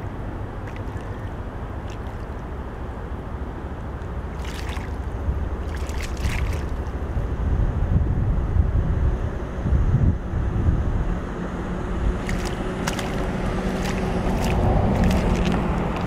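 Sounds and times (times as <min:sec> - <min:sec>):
steady low rumble: 0:00.0 - 0:16.0
alligator splashing in water: 0:00.6 - 0:02.6, 0:04.3 - 0:07.1, 0:12.1 - 0:16.0.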